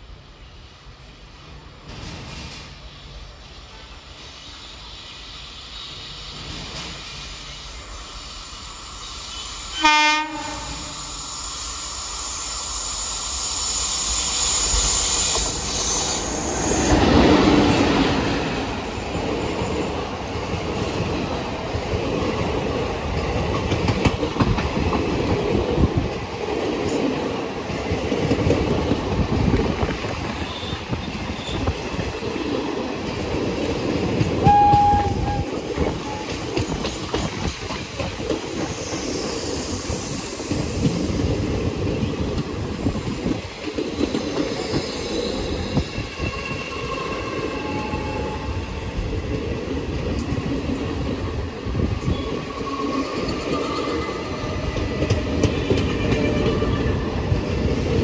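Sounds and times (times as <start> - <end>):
train passing rumble: 0.0 - 58.0
train horn blast: 9.3 - 11.1, 34.4 - 36.5.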